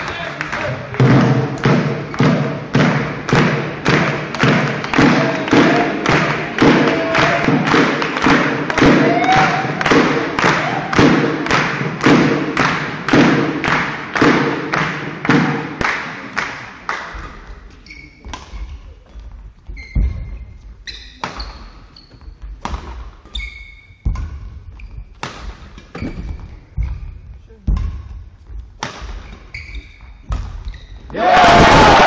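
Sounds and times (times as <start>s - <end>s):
spectators clapping in rhythm: 0.0s - 17.5s
shoe squeaks on court floor: 17.7s - 19.0s, 19.6s - 27.3s, 29.1s - 31.2s
racket striking shuttlecock: 22.6s - 23.2s, 24.0s - 27.0s, 27.7s - 30.8s.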